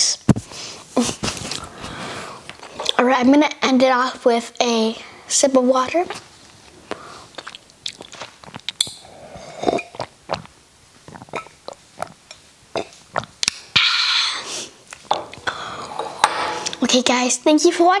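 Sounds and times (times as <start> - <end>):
breathy exhale: 1.7 - 2.4, 13.8 - 14.8, 15.4 - 16.8
sipping and swallowing water: 6.8 - 14.2
wet mouth clicks: 6.9 - 14.2.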